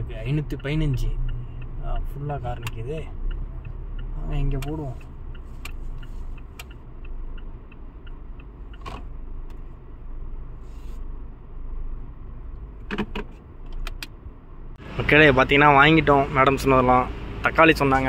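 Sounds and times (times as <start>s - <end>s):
faint regular ticking: 0.0s - 10.5s
car idling rumble: 0.0s - 18.0s
sharp clicks: 0.3s - 9.6s, 12.6s - 14.2s.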